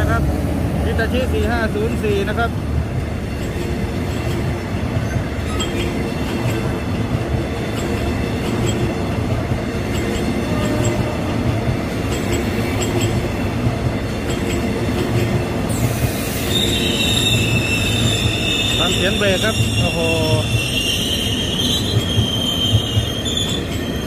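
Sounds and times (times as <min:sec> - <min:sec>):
train wheels rumbling and clacking: 0:00.0 - 0:24.0
train brakes squealing: 0:05.0 - 0:06.7, 0:15.7 - 0:24.0.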